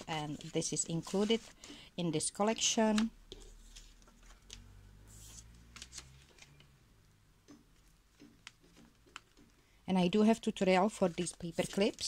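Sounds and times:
paper rustling: 0.0 - 1.8, 2.4 - 6.6, 10.9 - 12.0.

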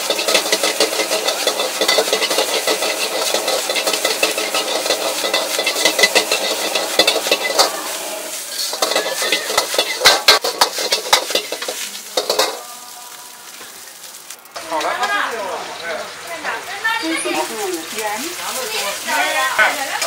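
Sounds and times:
metal ladle scraping wok: 0.0 - 12.9
rice sizzling: 0.0 - 20.0.

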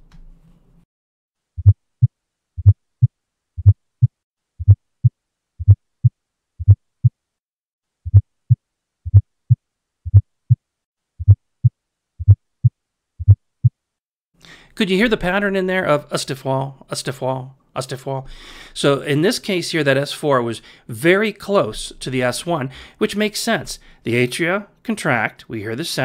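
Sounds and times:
heartbeat thumps: 1.6 - 4.8, 6.6 - 7.1, 8.1 - 10.6, 13.2 - 13.7.

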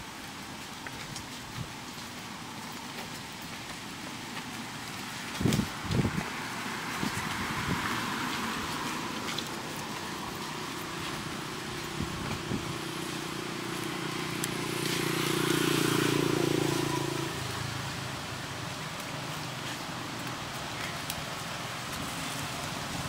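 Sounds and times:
vehicle engine humming passing: 6.0 - 23.0.

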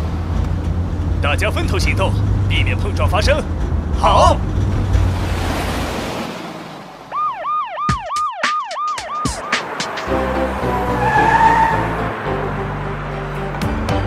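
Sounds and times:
sharp hits: 4.7 - 11.0
cartoon police siren wail: 7.1 - 12.0
instrumental song intro: 7.8 - 11.0.

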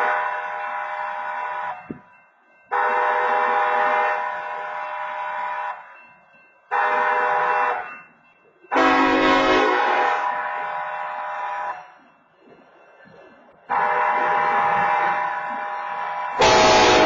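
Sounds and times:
locomotive air horn blasts: 0.0 - 1.9, 2.7 - 5.8, 6.7 - 7.8, 8.7 - 11.7, 13.7 - 17.0
train rumble: 0.0 - 17.0.

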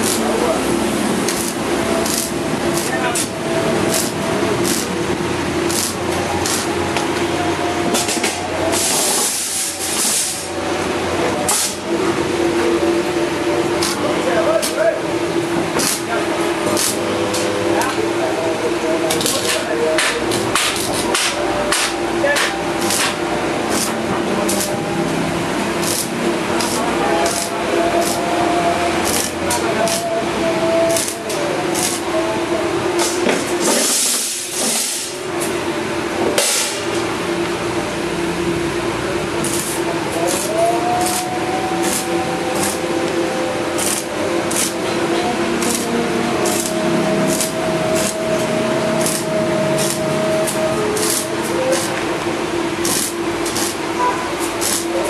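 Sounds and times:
electric arc welding hiss: 0.0 - 7.0, 8.0 - 10.6, 11.5 - 11.9, 13.7 - 17.9, 19.1 - 32.2, 33.0 - 35.4, 39.0 - 44.8, 45.4 - 55.0
steady hum: 0.0 - 55.0.

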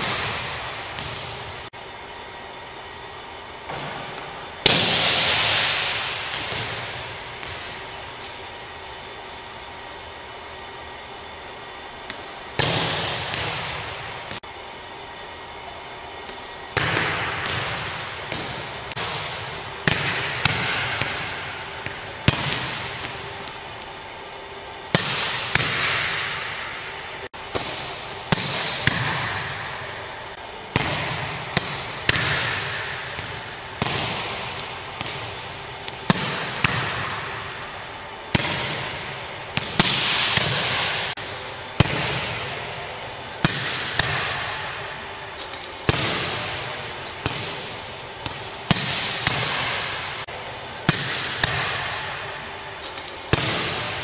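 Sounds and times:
balls bouncing on gym floor: 0.0 - 1.7, 3.2 - 8.7, 12.0 - 14.5, 16.2 - 24.1, 24.9 - 54.0
volleyballs smacking: 0.0 - 1.7, 3.6 - 8.8, 11.9 - 14.5, 16.2 - 24.2, 24.9 - 54.0.

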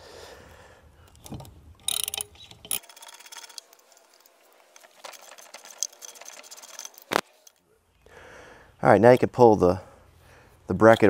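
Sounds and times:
ratchet wrench clicking: 1.1 - 7.5
metal clacks: 1.1 - 7.6.

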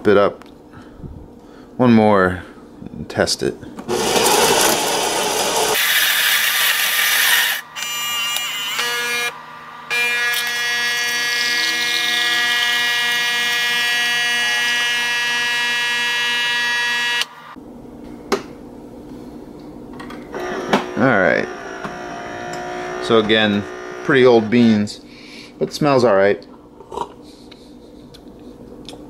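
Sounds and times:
espresso machine pump buzz: 3.9 - 6.2, 7.1 - 17.5, 20.4 - 24.6.

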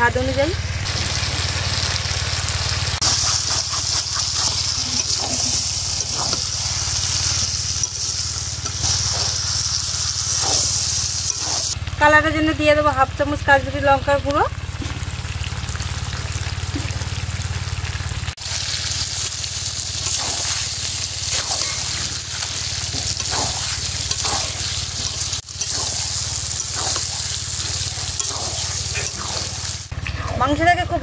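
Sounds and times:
chicken sizzling in a pan: 0.3 - 12.6, 13.3 - 30.0
steady low hum: 3.0 - 12.5, 19.0 - 31.0.

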